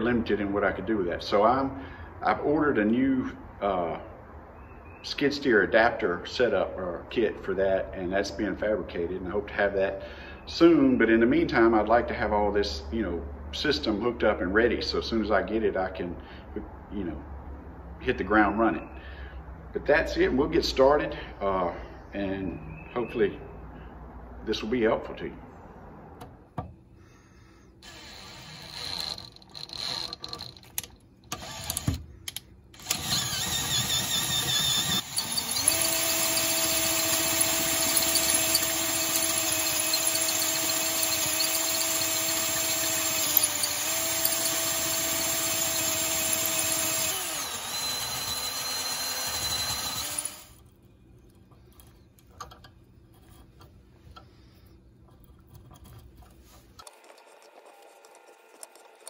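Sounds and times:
power drill boring metal: 0:27.8 - 0:32.0, 0:32.8 - 0:50.6.

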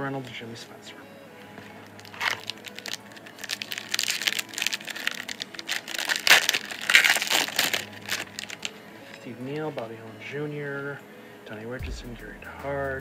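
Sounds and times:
foil wrapper crinkling: 0:01.8 - 0:09.2.

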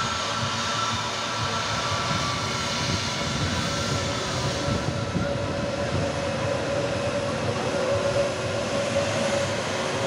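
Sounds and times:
jet airliner taxiing: 0:00.0 - 0:10.0.

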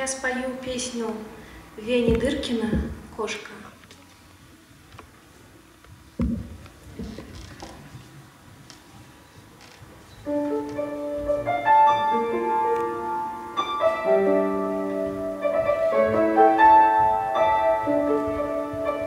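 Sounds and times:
solo piano: 0:10.2 - 0:19.0.

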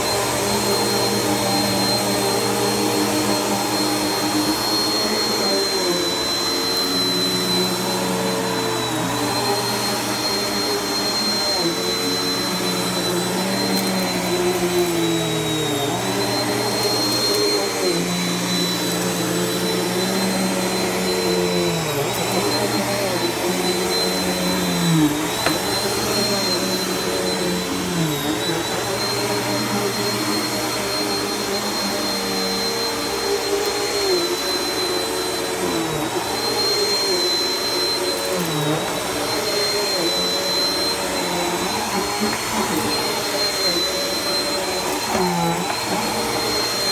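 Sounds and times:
vacuum cleaner running: 0:00.0 - 0:46.9.

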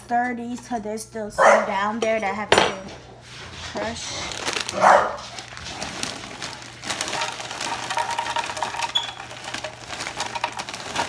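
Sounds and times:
crumbs scraping in plastic jar: 0:05.3 - 0:11.0.

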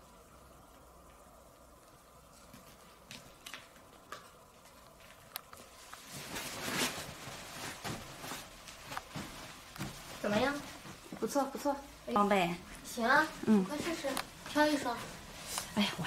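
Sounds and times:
rustling of bedsheets: 0:02.2 - 0:16.0.

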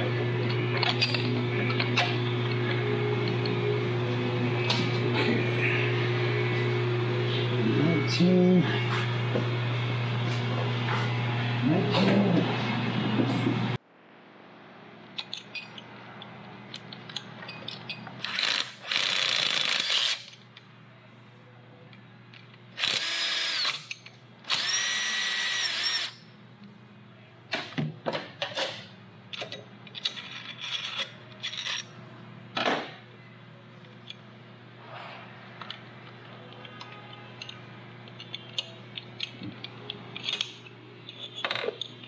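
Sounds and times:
power drill whirring: 0:18.2 - 0:20.2, 0:22.8 - 0:23.8, 0:24.5 - 0:26.2.

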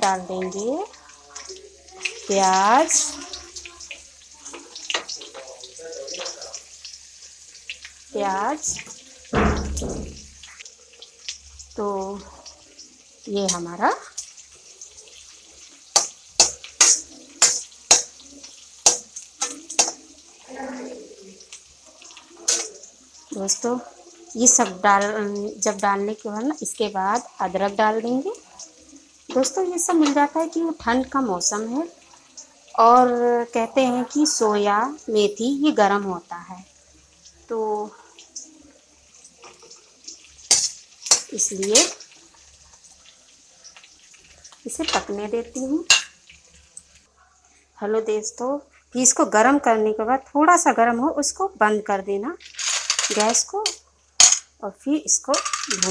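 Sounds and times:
onion sizzling in hot oil: 0:00.0 - 0:55.9
metal spoon scraping a pan: 0:15.9 - 0:20.0, 0:22.1 - 0:22.9, 0:39.1 - 0:42.1, 0:44.7 - 0:47.0, 0:55.3 - 0:55.9.

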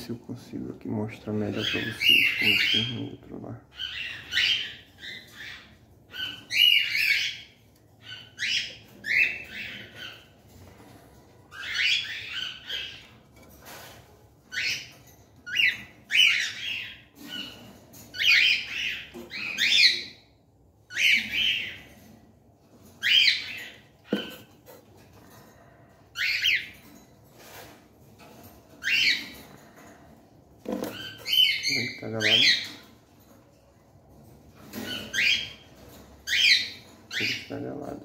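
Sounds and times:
cockatiels screeching: 0:01.6 - 0:03.1, 0:03.7 - 0:10.4, 0:11.5 - 0:20.2, 0:20.9 - 0:22.1, 0:23.0 - 0:24.5, 0:25.3 - 0:27.8, 0:28.8 - 0:29.8, 0:30.7 - 0:32.9, 0:34.6 - 0:38.0.

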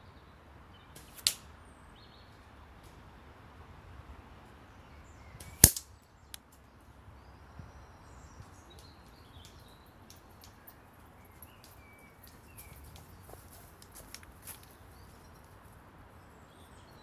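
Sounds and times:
faint birdsong: 0:00.0 - 0:17.0
airsoft rifle shot: 0:05.5 - 0:05.9.

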